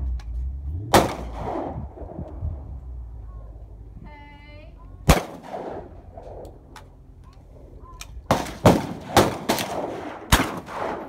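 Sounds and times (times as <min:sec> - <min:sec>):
shotgun shots: 0:00.9 - 0:02.2, 0:05.0 - 0:06.5, 0:08.2 - 0:11.0.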